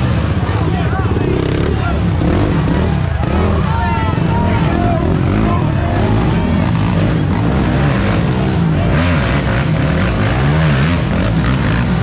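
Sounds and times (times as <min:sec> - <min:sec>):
atv engines revving: 0:00.0 - 0:12.0.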